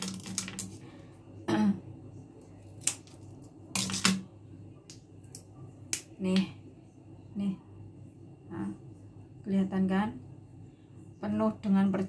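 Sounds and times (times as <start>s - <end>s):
nut shell clicking and cracking: 0.0s - 0.8s, 2.7s - 4.2s
low steady hum: 0.0s - 12.0s.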